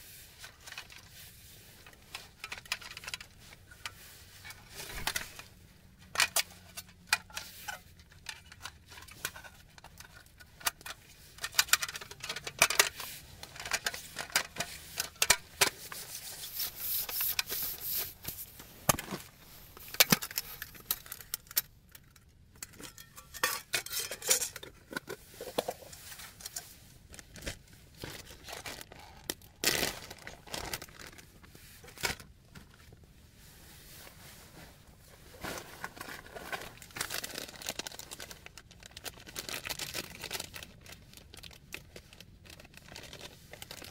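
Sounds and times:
metal table parts clicking and rattling: 19.8 - 25.1.

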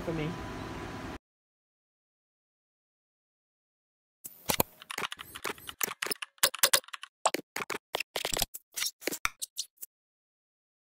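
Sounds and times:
keyboard key clicks: 4.5 - 7.8.

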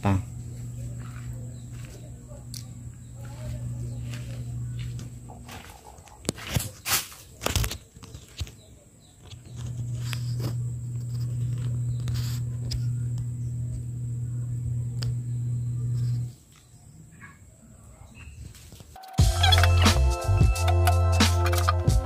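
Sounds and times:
pool pump motor humming: 0.0 - 5.8, 9.4 - 16.4.

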